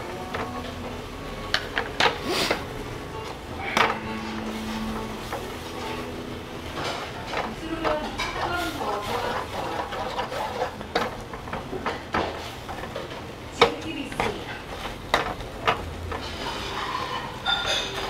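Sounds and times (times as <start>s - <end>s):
metal spoon scraping a wok: 3.6s - 12.9s, 16.1s - 18.0s.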